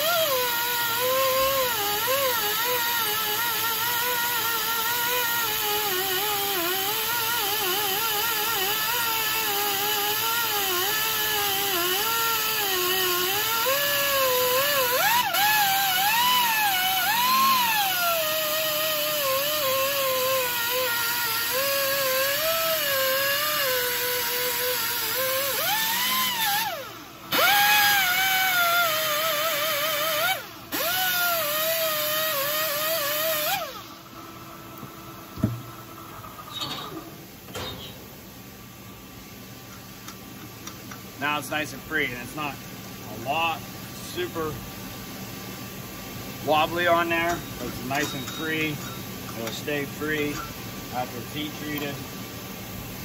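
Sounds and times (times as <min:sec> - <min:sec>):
metal squealing on spinning lathe: 0:47.2 - 0:49.5.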